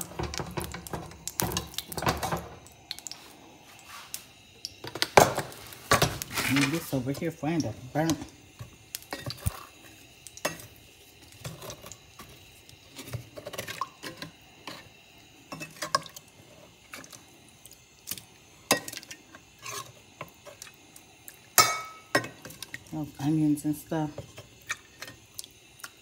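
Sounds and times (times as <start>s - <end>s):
metal utensil clinking on pots: 21.6s - 22.6s.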